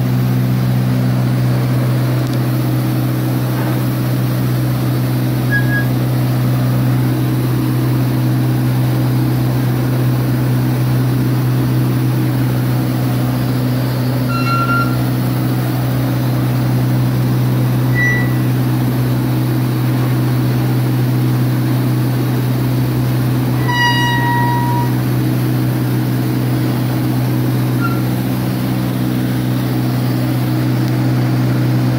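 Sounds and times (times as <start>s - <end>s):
low mechanical hum: 0.0s - 31.9s
short high-pitched beeps: 5.5s - 5.9s, 14.3s - 15.0s, 18.0s - 18.5s.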